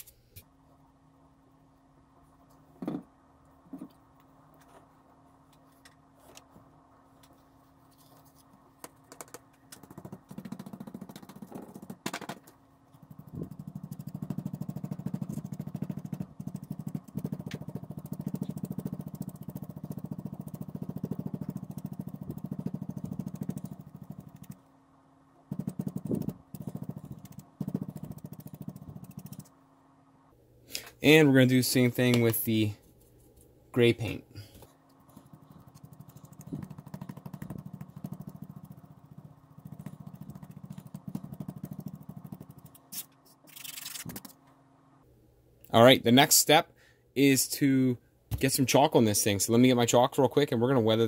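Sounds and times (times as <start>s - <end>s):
sponge tapping on foam board: 8.8s - 12.4s, 25.5s - 29.4s, 35.1s - 42.6s.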